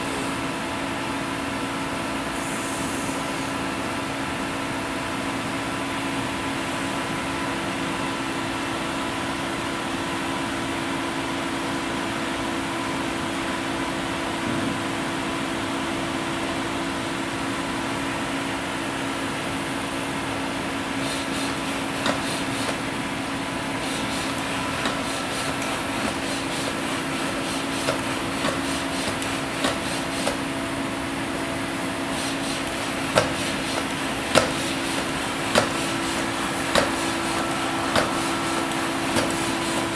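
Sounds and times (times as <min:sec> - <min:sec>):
robot footstep clicks and knocks: 0:35.5 - 0:35.8.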